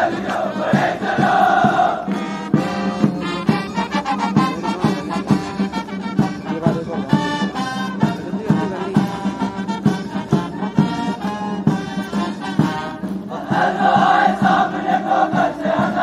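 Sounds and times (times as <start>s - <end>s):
crowd chanting: 0.0s - 2.9s, 13.2s - 16.0s
military band playing a march: 0.0s - 16.0s.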